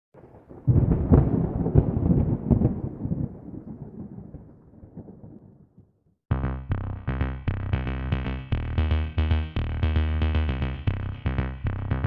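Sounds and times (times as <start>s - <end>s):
thunder-like rumble with crackles: 0.2s - 6.0s.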